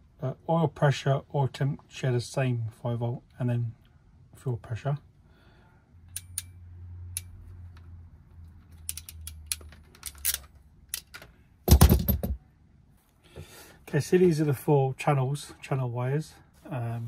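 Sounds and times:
ratcheting crimping tool clicking: 0:06.1 - 0:07.4, 0:08.8 - 0:11.2.

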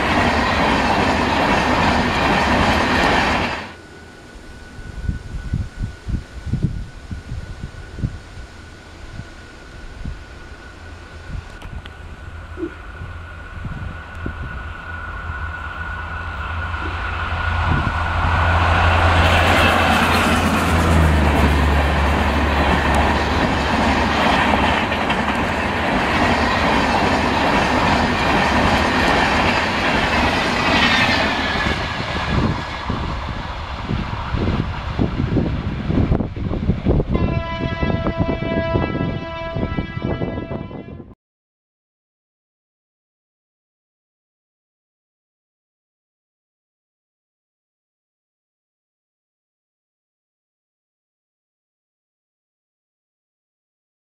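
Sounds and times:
electric locomotive hum: 0:00.0 - 0:41.2
locomotive horn: 0:37.0 - 0:41.2.

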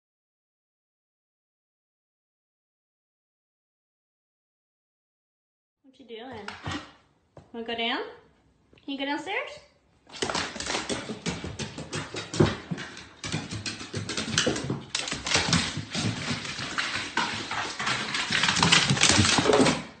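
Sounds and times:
dog claws clattering on wooden stairs: 0:10.1 - 0:20.0.

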